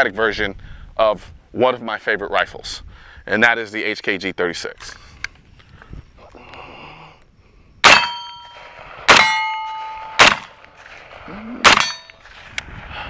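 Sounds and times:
bullets clanging on steel targets: 0:07.8 - 0:10.5, 0:11.6 - 0:12.2
rifle shots: 0:07.8 - 0:12.5.

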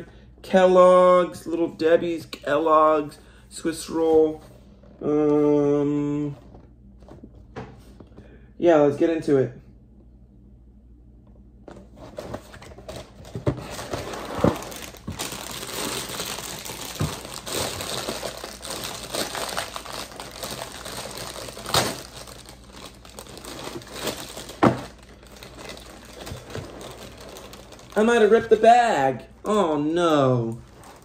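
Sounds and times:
plastic bag crinkling: 0:12.7 - 0:28.6, 0:30.2 - 0:31.0.

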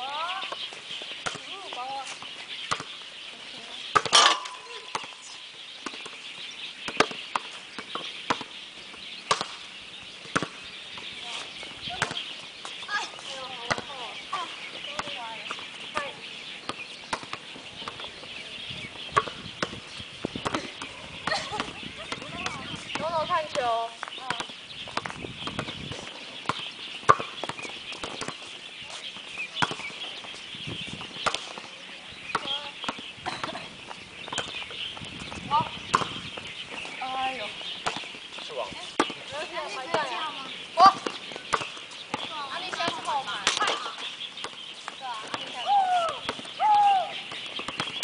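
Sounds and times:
volleyball slapping on arms: 0:35.9 - 0:36.2, 0:38.9 - 0:40.2
volleyball slaps on hard court: 0:35.9 - 0:36.2.

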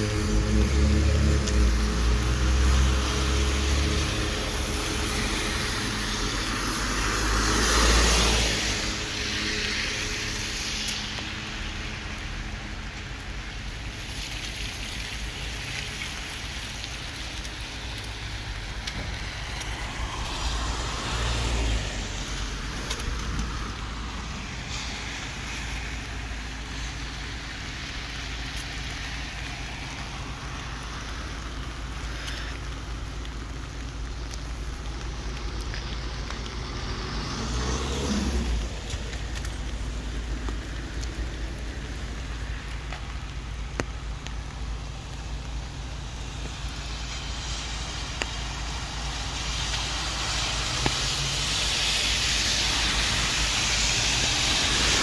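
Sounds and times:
background traffic: 0:00.0 - 0:55.0
rain: 0:00.0 - 0:55.0
tyres hissing on wet street: 0:00.0 - 0:55.0.

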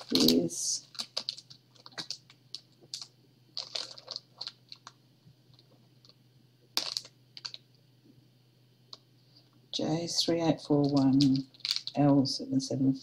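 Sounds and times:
plastic crinkling and clicking: 0:00.0 - 0:06.2, 0:06.8 - 0:07.6, 0:10.8 - 0:12.0
low steady hum: 0:00.0 - 0:13.0.

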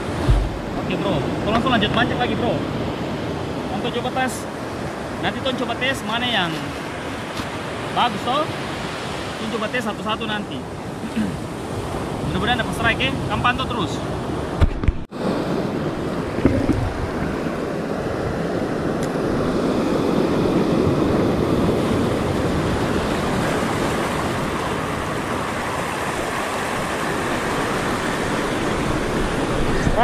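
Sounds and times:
surf breaking over rocks: 0:00.0 - 0:02.5
wind buffeting microphone: 0:00.0 - 0:03.8, 0:14.4 - 0:30.0
short knock: 0:00.2 - 0:00.7.

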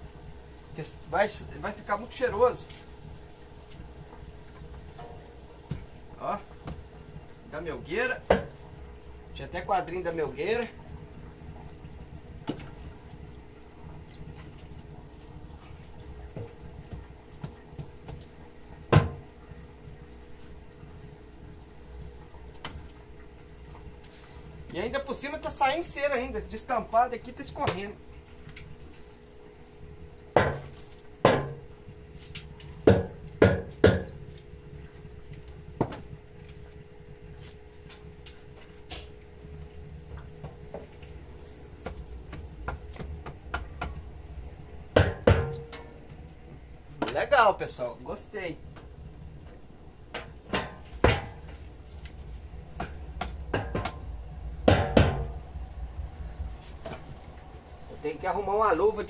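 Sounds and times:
faint steady hum: 0:00.0 - 0:59.0
wooden frames knocking on metal drum: 0:30.4 - 0:31.7, 0:45.0 - 0:45.9, 0:50.2 - 0:51.5, 0:52.8 - 0:55.4
high wavering squeak: 0:39.2 - 0:44.4
wooden frame knocking on steel drum: 0:52.8 - 0:55.4.

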